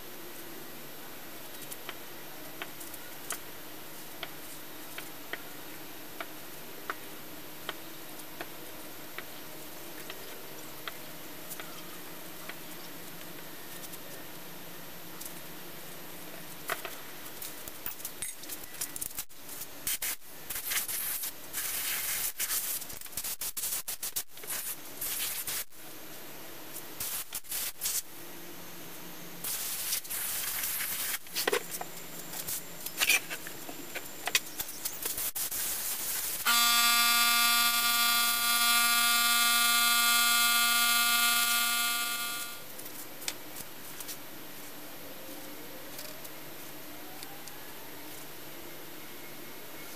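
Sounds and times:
air blow gun hissing: 29.4s - 31.2s.

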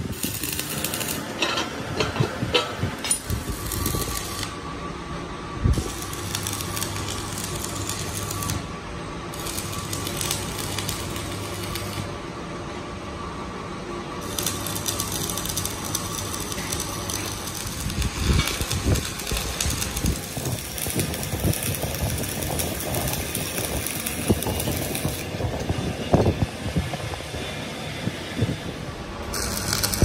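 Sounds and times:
metal parts clanking: 1.3s - 3.3s.

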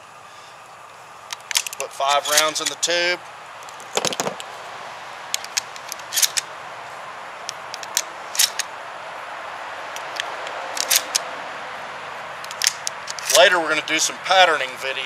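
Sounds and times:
shotgun shells clicking into magazine: 12.5s - 13.4s.

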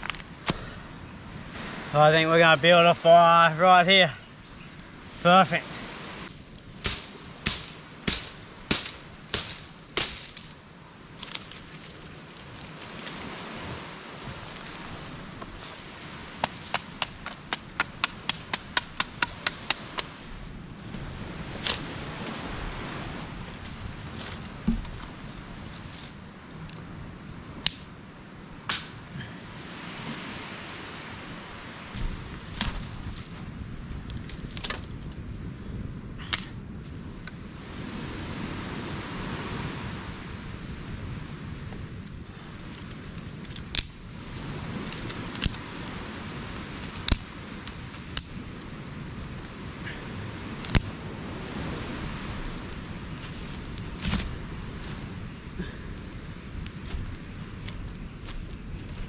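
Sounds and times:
steady background hiss: 0.0s - 34.8s
dry fronds and twigs rustling: 0.0s - 59.0s
sharp fire cracks: 41.8s - 45.8s, 46.4s - 48.7s, 50.6s - 51.0s.

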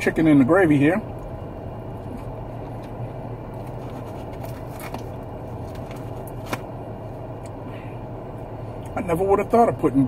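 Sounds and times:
low car cabin hum: 0.0s - 10.0s.

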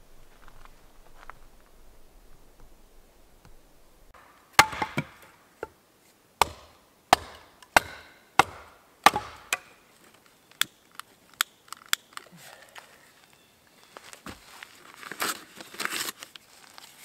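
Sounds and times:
axe chopping firewood: 4.2s - 5.8s, 6.4s - 9.8s.

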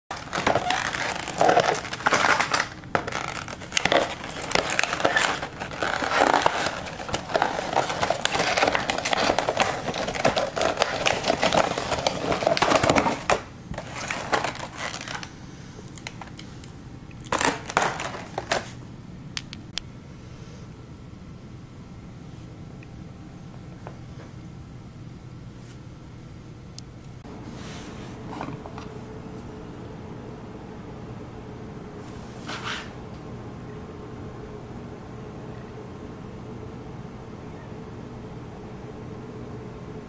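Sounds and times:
packaging crinkling and rustling: 0.1s - 15.4s, 16.0s - 18.8s.

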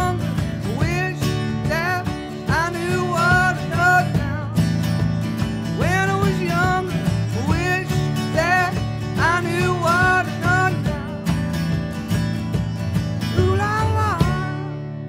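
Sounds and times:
acoustic guitars strumming: 0.0s - 15.0s.

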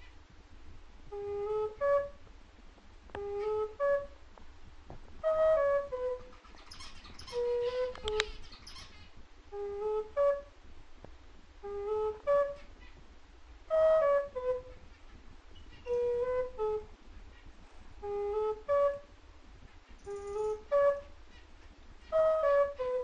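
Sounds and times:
slow soft melody: 1.0s - 2.3s, 3.1s - 4.4s, 5.0s - 8.4s, 9.5s - 10.7s, 11.6s - 12.9s, 13.6s - 14.9s, 15.8s - 17.0s, 17.8s - 19.2s, 20.0s - 21.2s, 22.0s - 23.0s
high chirps: 5.2s - 10.4s, 19.9s - 21.1s.

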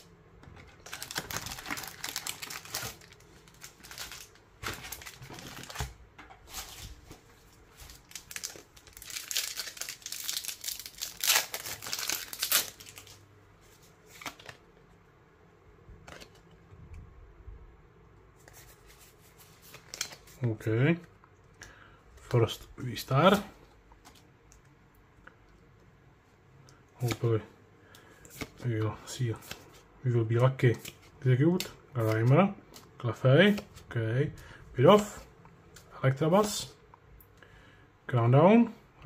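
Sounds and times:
cards rustling: 0.6s - 14.6s, 18.4s - 20.6s
foil wrapper crinkling: 0.8s - 6.0s, 7.8s - 13.2s, 19.6s - 20.4s.

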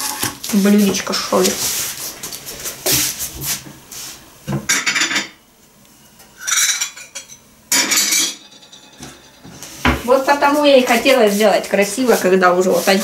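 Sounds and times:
crockery and cutlery clinking: 6.4s - 9.6s.

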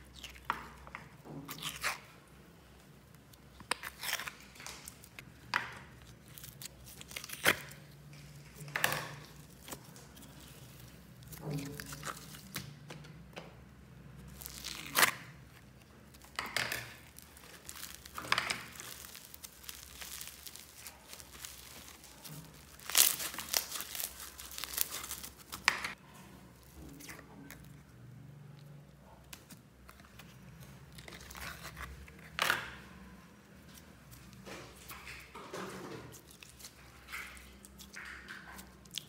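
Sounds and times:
hands squishing slime: 14.2s - 26.0s.

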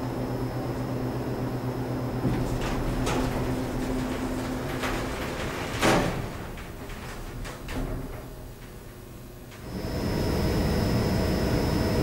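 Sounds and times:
elevator machinery humming: 0.0s - 12.0s
doors sliding: 1.9s - 10.4s
loud clunk: 2.2s - 9.1s.

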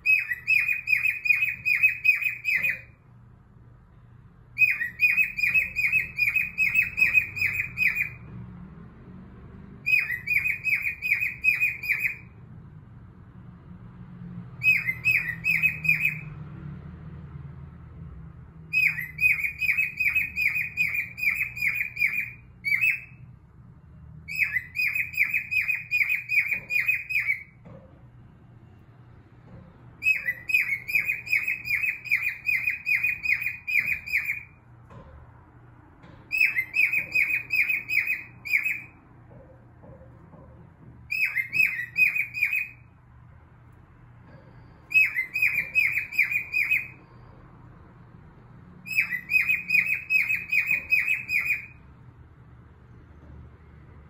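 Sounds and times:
cockatiel singing: 0.0s - 3.1s, 4.5s - 8.3s, 9.8s - 12.4s, 14.6s - 16.4s, 18.7s - 23.3s, 24.3s - 27.8s, 30.0s - 34.6s, 36.3s - 39.1s, 41.1s - 43.0s, 44.8s - 47.1s, 48.8s - 51.8s.

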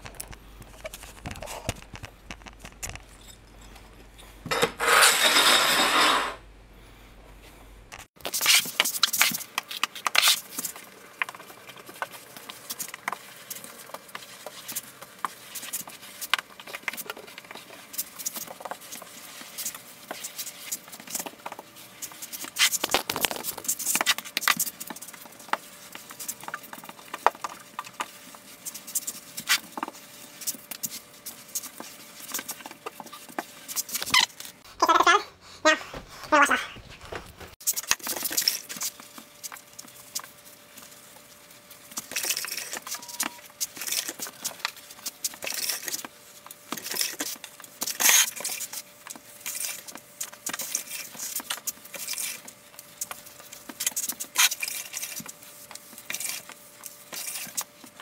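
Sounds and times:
sponge scrubbing tile floor: 4.5s - 6.4s, 35.7s - 58.0s.

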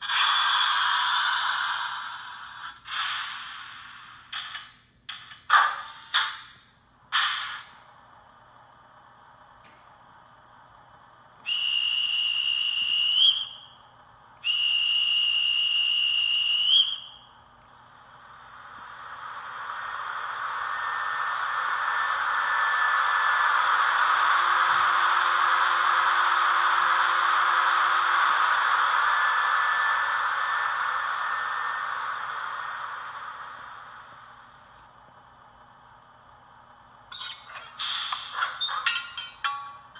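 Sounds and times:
long hiss: 0.0s - 38.9s
sharp clinks: 37.1s - 39.9s.

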